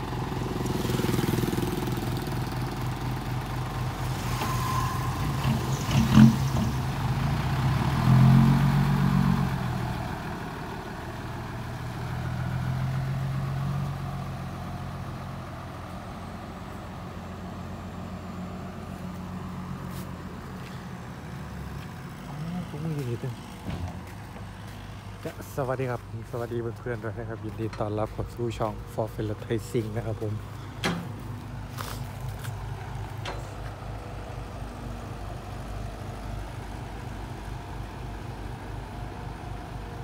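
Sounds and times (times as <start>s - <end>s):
diesel truck engine revving: 0.0s - 15.8s.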